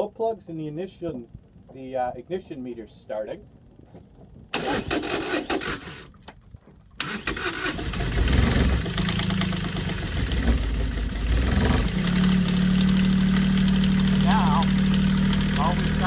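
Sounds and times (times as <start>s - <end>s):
starter motor cranking: 4.5s - 6.2s, 7.0s - 16.0s
diesel engine idling: 7.0s - 16.0s.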